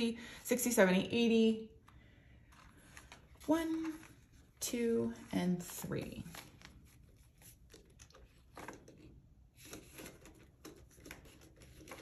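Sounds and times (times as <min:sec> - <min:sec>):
paper banknotes rustling: 0:02.4 - 0:12.0
plastic envelope crinkling: 0:05.1 - 0:12.0.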